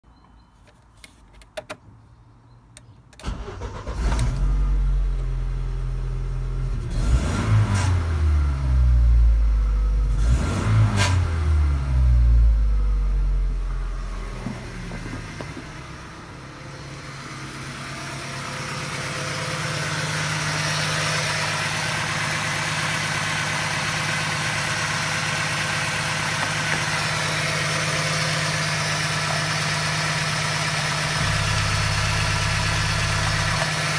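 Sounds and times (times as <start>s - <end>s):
petrol engine starting and idling: 3.1s - 7.0s, 11.4s - 33.9s
engine revving: 3.2s - 33.9s.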